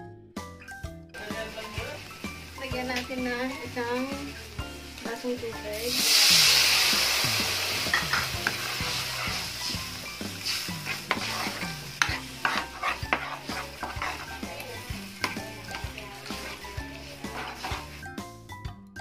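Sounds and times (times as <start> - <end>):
sauce sizzling in a wok: 1.2 - 18.4
spatula scraping a metal wok: 5.9 - 18.2.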